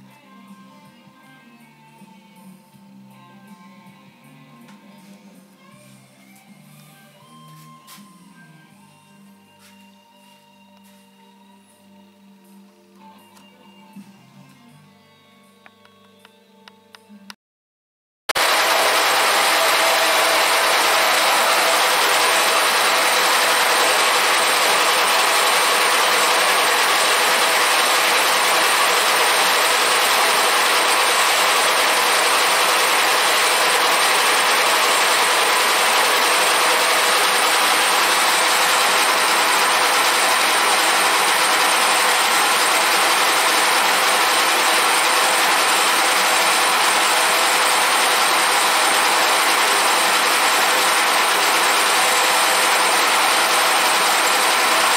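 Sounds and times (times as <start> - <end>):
milling machine cutting metal: 18.4 - 54.9.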